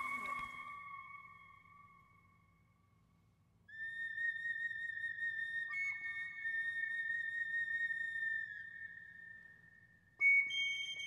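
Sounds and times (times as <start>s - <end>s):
flute-like high notes: 0.0s - 1.8s.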